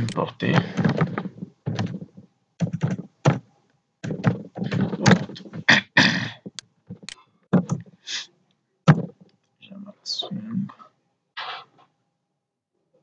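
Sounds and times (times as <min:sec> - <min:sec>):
keyboard typing: 0:00.0 - 0:03.4, 0:04.0 - 0:05.7, 0:06.4 - 0:07.9.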